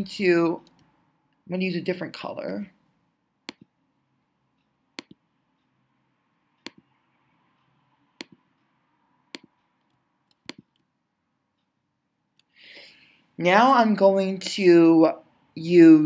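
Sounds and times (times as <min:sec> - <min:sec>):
computer mouse clicks: 0:00.6 - 0:00.9, 0:03.4 - 0:03.7, 0:05.0 - 0:05.2, 0:06.6 - 0:06.9, 0:08.2 - 0:08.5, 0:09.3 - 0:10.9.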